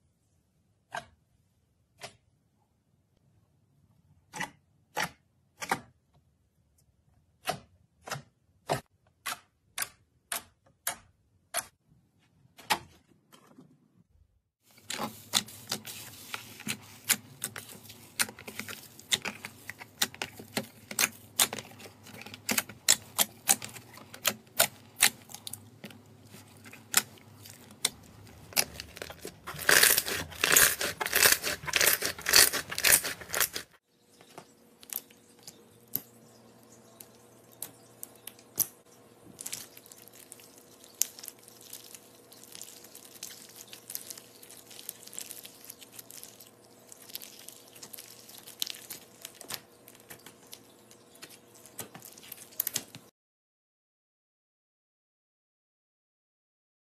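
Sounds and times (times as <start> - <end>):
slime crackling: 14.8 - 33.8, 39.4 - 50.6.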